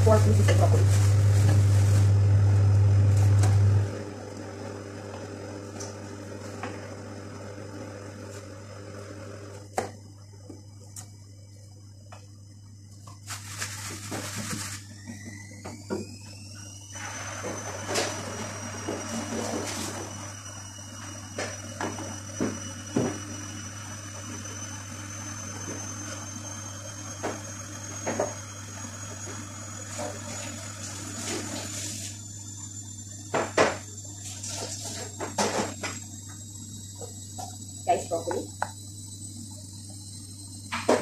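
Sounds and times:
steady low hum: 9.6s - 41.0s
faint high whine: 9.7s - 41.0s
water running from tap: 34.2s - 35.2s.

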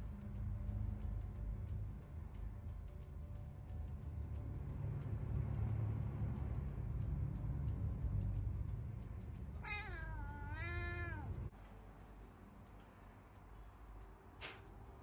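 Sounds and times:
cat meowing: 9.6s - 11.5s.

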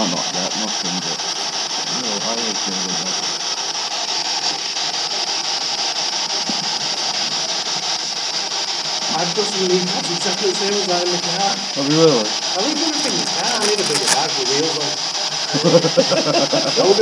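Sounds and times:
radio static hiss: 0.0s - 3.4s, 12.5s - 16.4s.

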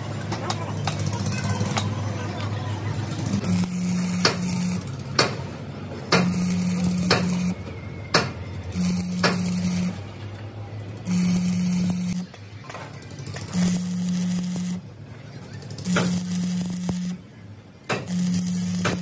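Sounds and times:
low welding hum: 0.0s - 19.0s
welding arc crackling and hissing: 3.2s - 7.6s, 8.2s - 10.2s, 11.0s - 12.3s, 13.2s - 14.8s, 15.6s - 17.2s, 17.9s - 19.0s.

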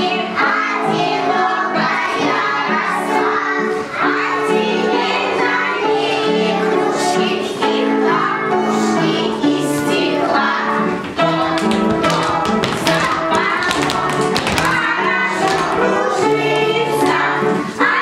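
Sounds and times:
children singing: 0.0s - 18.0s
instrumental accompaniment: 0.0s - 18.0s.

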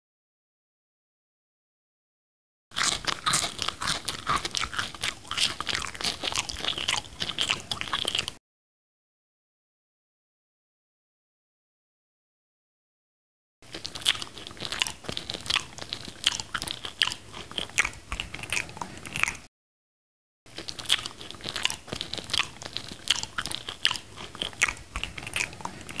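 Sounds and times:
biting and chewing fruit: 2.7s - 8.4s, 13.6s - 19.5s, 20.5s - 26.0s.

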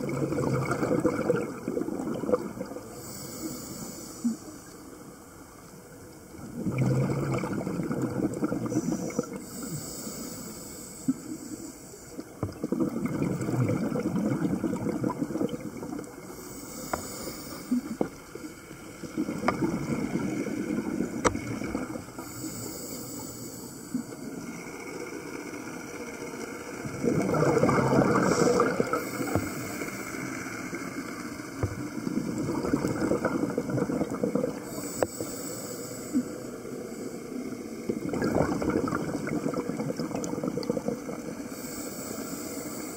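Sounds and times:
exhaled bubbles rushing: 0.0s - 2.9s, 6.4s - 9.4s, 12.2s - 16.4s, 17.8s - 22.3s, 26.8s - 30.0s, 30.6s - 34.8s, 37.5s - 41.5s
regulator inhalation hiss: 2.8s - 5.0s, 8.7s - 12.2s, 16.2s - 18.8s, 22.1s - 24.5s, 28.0s - 31.5s, 34.6s - 37.9s, 41.4s - 42.9s.

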